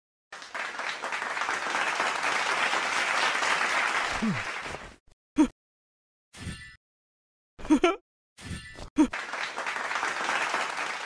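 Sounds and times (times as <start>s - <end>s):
audience applause: 0.3s - 5.0s, 9.1s - 11.0s.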